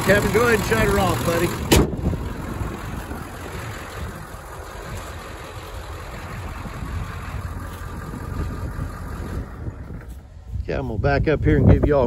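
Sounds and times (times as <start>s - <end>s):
diesel engine idling: 0.0s - 10.6s.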